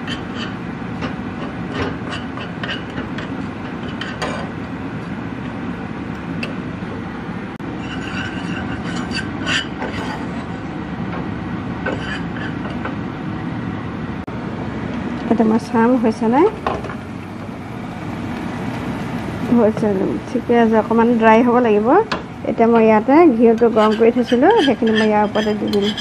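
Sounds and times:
spoon scraping a pan: 0.0 - 4.6, 7.7 - 10.6, 11.8 - 12.8, 22.7 - 26.0.

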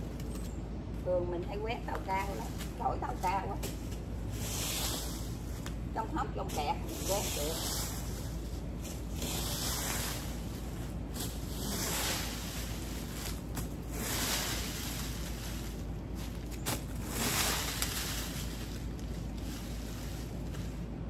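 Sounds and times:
rake scraping through leaves: 1.6 - 21.0.

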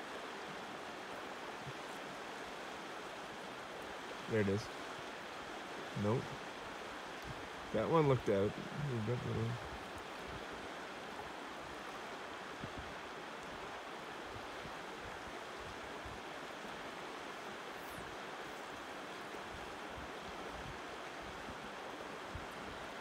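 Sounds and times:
river flowing over boulders: 0.0 - 23.0.

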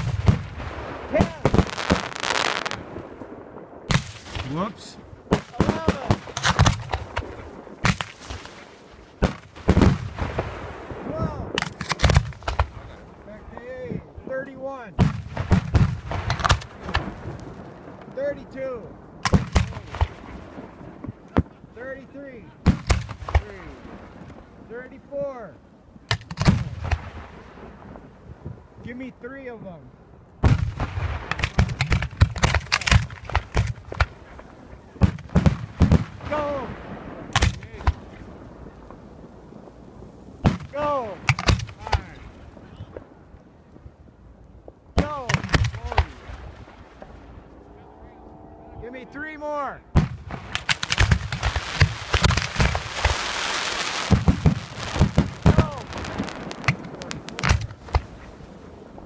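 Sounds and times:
hissing crackle of fireworks: 0.0 - 13.1, 50.0 - 59.0
fireworks bangs: 0.0 - 14.3, 15.0 - 25.0, 26.0 - 28.6, 30.4 - 43.9, 44.7 - 47.6, 49.8 - 59.0.

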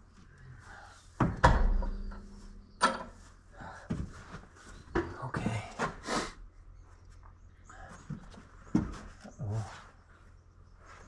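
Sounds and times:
man breathing heavily: 0.2 - 1.2, 3.5 - 4.6, 5.8 - 6.5
knocks and clicks of parts: 1.2 - 3.2.

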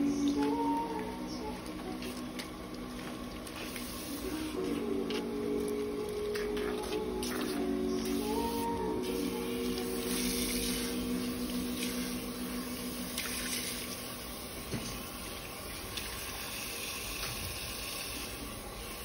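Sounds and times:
water rushing from hand sprayer: 6.3 - 19.0.

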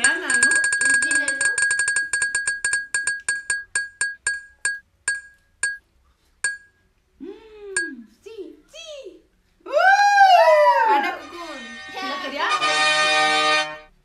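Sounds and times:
spinning wheel ticking: 0.0 - 5.8, 6.4 - 6.8.

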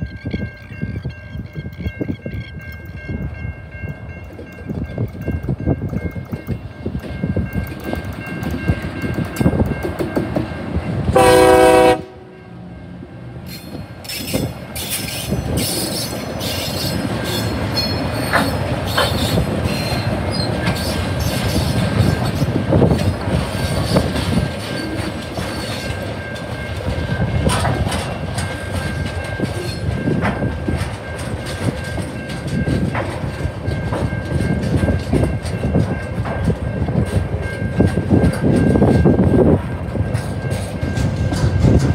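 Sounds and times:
locomotive horn blast: 11.1 - 12.6
wagon wheels clattering over rail joints: 13.5 - 39.4.

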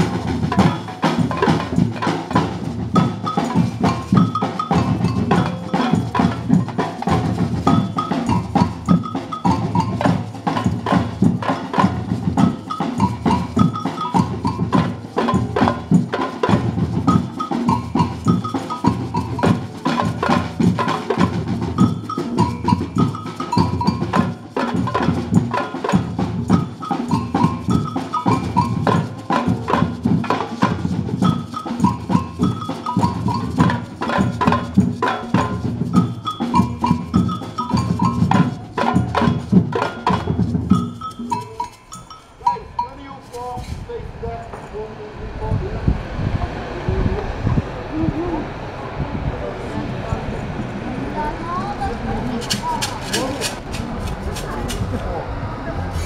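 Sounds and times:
high pitched clicking pattern: 0.0 - 43.6
group of drums playing: 0.0 - 44.9, 49.7 - 56.0.

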